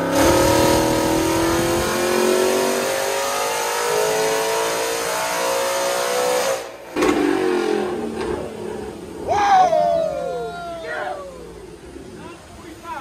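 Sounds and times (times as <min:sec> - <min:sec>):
car engine revving at full throttle: 0:00.0 - 0:09.3.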